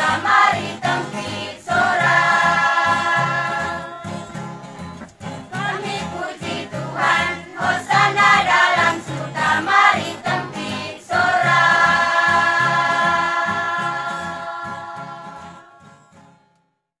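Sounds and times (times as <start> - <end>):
choir singing: 0.0 - 4.6, 5.5 - 16.0
guitar strumming: 0.0 - 16.6.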